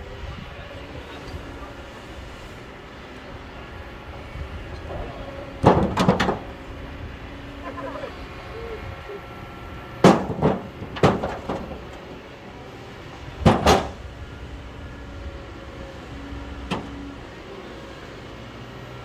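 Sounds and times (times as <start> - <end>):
diesel engine hum: 0.0 - 19.0
stones dropping into steel trailer: 10.0 - 12.0.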